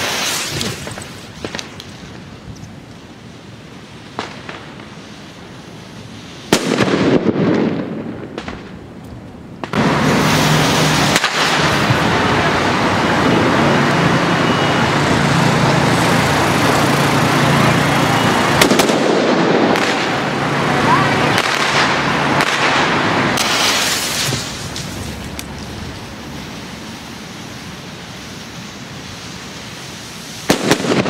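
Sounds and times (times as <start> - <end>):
fireworks hissing rush: 0.0 - 31.0
loud burst: 6.4 - 8.7, 9.6 - 26.8, 27.5 - 31.0.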